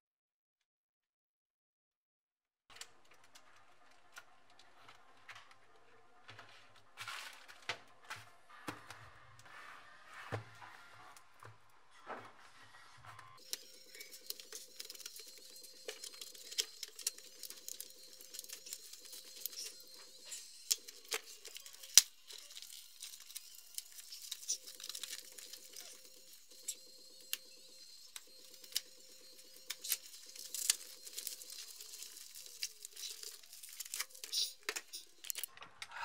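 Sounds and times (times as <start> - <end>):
tape and paper tearing: 13.4 - 27.5, 28.2 - 35.5
blade cutting packaging: 13.4 - 35.5.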